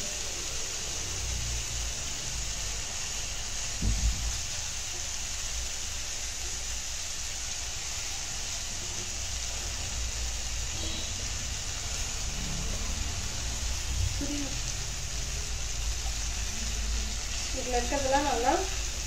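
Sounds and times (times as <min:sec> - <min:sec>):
chicken sizzling in hot oil: 0:00.0 - 0:19.0.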